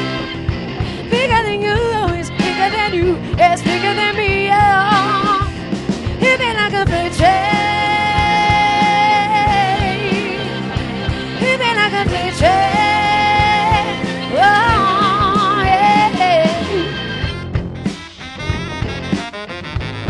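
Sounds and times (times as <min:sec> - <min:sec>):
drum kit: 0:00.0 - 0:20.0
electric bass: 0:00.0 - 0:20.0
electric guitar: 0:00.0 - 0:20.0
woman singing: 0:01.0 - 0:05.5, 0:06.2 - 0:17.0.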